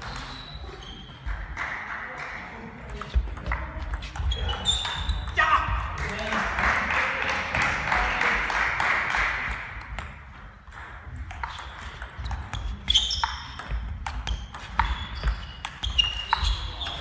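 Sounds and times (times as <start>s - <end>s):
table tennis ball bouncing: 0.0s - 2.0s, 2.7s - 5.4s, 9.3s - 17.0s.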